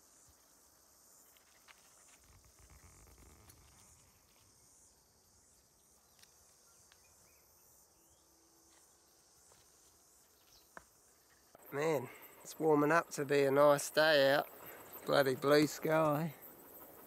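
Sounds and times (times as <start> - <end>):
high insect chirring: 0.0 - 17.0
footsteps on forest floor: 8.6 - 11.0.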